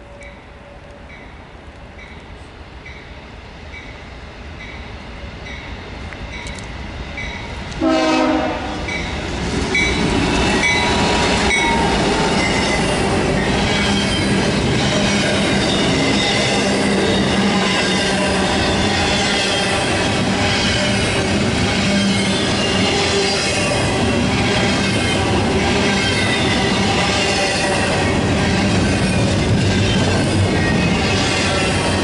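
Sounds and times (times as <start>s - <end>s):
train engine and wheel noise: 0.0s - 32.0s
train horn blast: 7.8s - 9.0s
crossing bell dinging: 9.8s - 18.2s.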